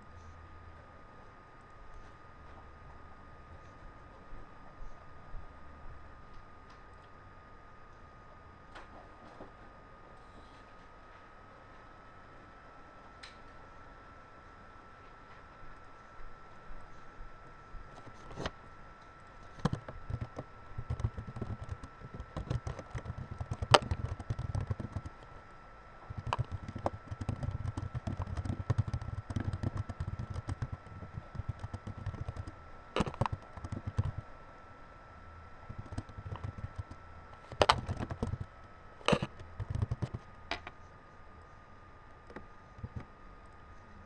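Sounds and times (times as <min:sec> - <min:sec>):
faint high-pitched hum: 0:00.0 - 0:44.0
computer keyboard typing: 0:19.6 - 0:25.3, 0:26.1 - 0:34.2, 0:35.7 - 0:40.3.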